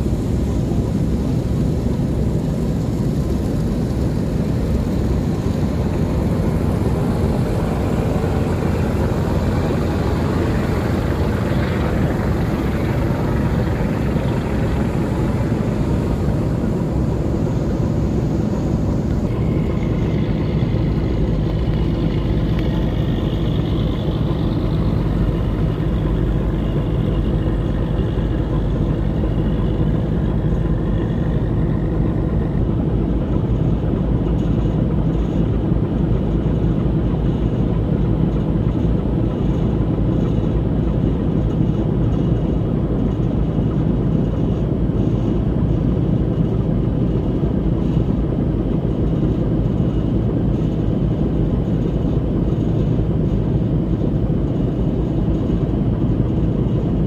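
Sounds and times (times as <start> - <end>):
boat engine droning: 0.0 - 57.0
faint high whine: 0.0 - 57.0.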